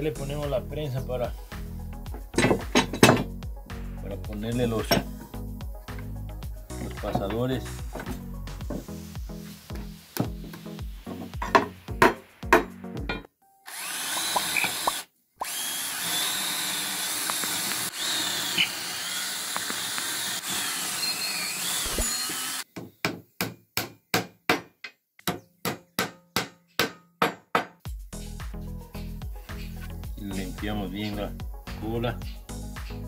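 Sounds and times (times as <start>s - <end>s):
hammer striking wooden dowels: 2.3s - 3.3s, 6.8s - 8.9s, 10.2s - 13.3s, 23.0s - 27.8s
cordless drill boring into wood: 13.7s - 22.6s.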